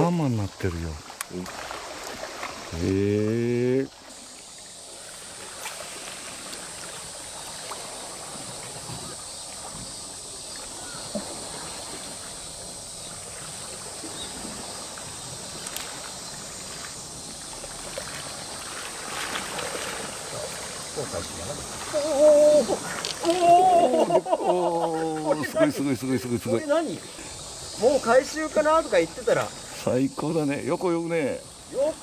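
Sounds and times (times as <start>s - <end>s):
water lapping against rocks: 0.2s - 29.9s
faint ticks: 15.6s - 16.1s.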